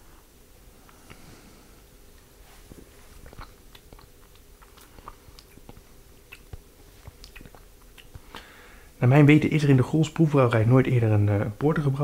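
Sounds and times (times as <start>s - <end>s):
lip smacks: 3.1s - 8.6s
tongue clicks: 3.3s - 8.5s.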